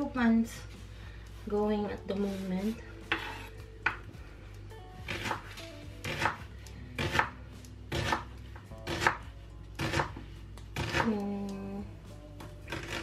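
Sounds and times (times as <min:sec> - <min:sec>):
knife slicing onion on board: 0:03.0 - 0:04.0, 0:05.0 - 0:11.3, 0:12.7 - 0:13.0.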